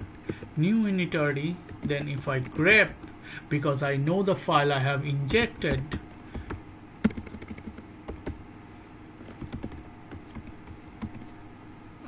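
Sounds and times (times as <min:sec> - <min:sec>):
keyboard typing clicks: 0:00.0 - 0:00.6, 0:01.7 - 0:03.1, 0:05.3 - 0:08.4, 0:09.2 - 0:11.3.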